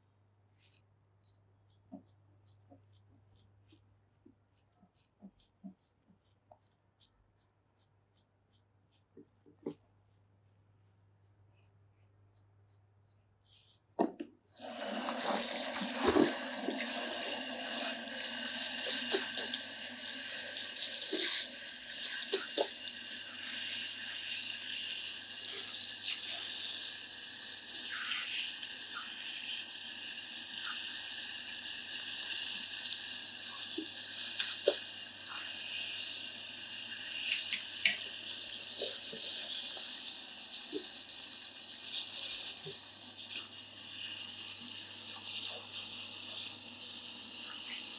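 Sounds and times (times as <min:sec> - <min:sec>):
tap water running into basin: 0:14.0 - 0:47.9
hands rinsing hair: 0:14.6 - 0:26.6.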